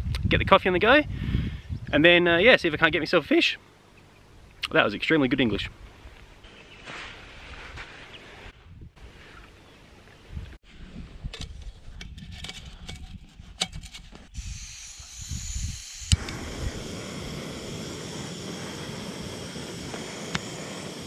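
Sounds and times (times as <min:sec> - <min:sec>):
gas burner hissing: 0:14.4 - 0:21.0
gas valve hissing: 0:14.4 - 0:21.0.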